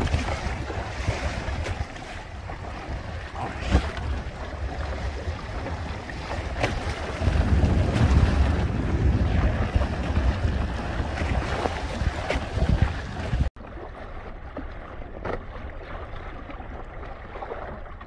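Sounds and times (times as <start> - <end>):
wind buffeting microphone: 0.0 - 13.5
water splashing along a hull: 0.0 - 18.0.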